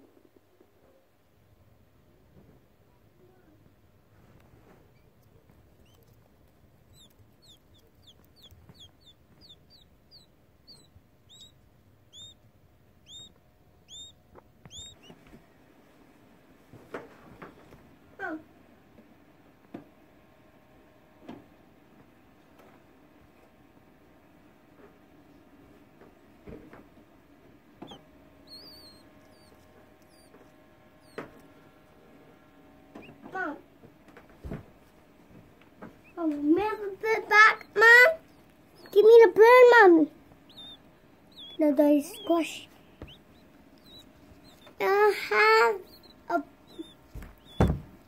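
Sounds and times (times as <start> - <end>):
quail chick peeping: 4.3 - 16.1, 24.1 - 48.0
soft knocks: 47.1 - 48.0.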